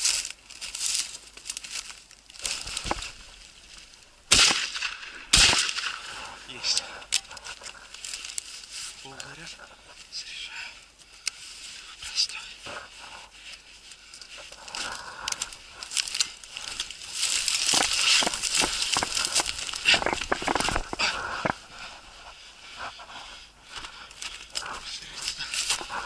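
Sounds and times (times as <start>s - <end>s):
footsteps crunching through snow: 0.0s - 4.0s, 12.6s - 26.0s
dry stems crackling: 0.0s - 26.0s
stems brushing against clothing: 0.0s - 26.0s.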